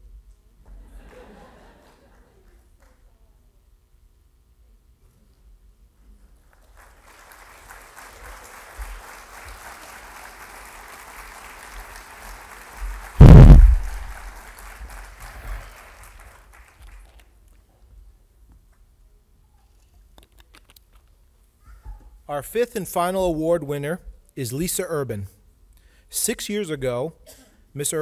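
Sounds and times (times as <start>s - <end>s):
audience applauding: 6.6s - 13.2s, 13.8s - 17.2s
loud deep thump: 13.2s - 14.3s.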